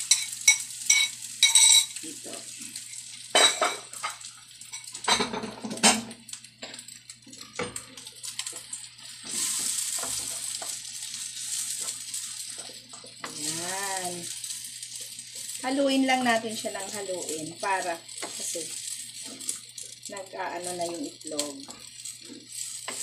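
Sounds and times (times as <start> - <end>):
rice and egg sizzling in a pan: 0.0 - 23.0
spatula scraping a pan: 7.4 - 15.6, 21.6 - 23.0.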